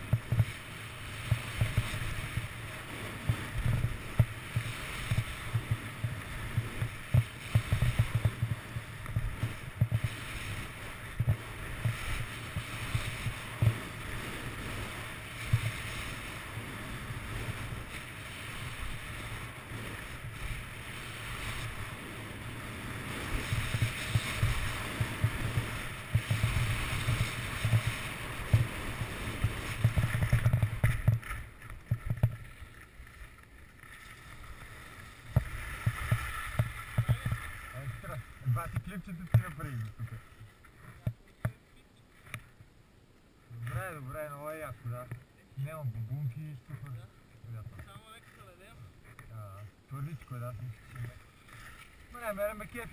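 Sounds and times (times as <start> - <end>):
wind buffeting microphone: 0.0 - 32.4
skis scraping over snow: 0.0 - 41.5, 43.5 - 52.9.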